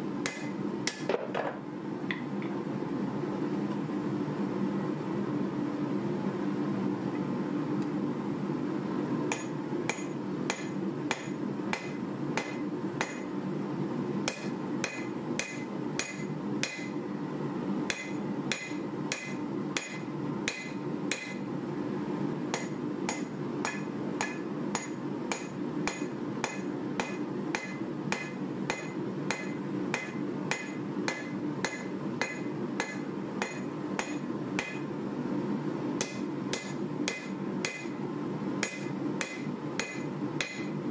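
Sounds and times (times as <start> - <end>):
hammer ringing on anvil: 9.3 - 13.3, 14.3 - 16.9, 17.9 - 21.4, 22.5 - 34.8, 36.0 - 38.0, 38.6 - 40.8.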